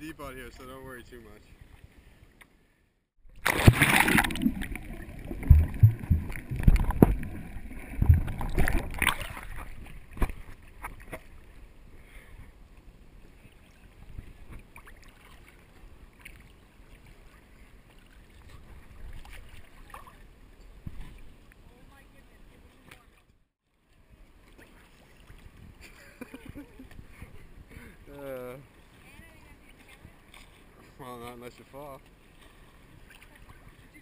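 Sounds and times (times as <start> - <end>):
water gently lapping: 0.1 - 34.0
water splashing against camera: 3.2 - 11.6, 29.0 - 34.0.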